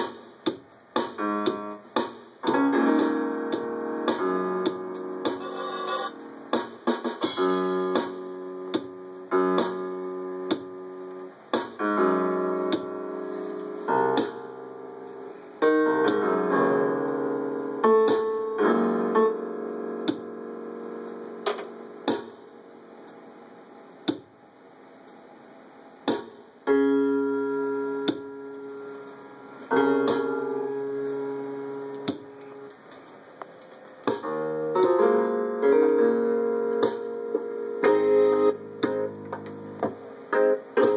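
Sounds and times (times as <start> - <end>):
electronic keyboard note clusters: 0.9 - 24.2, 34.0 - 40.9.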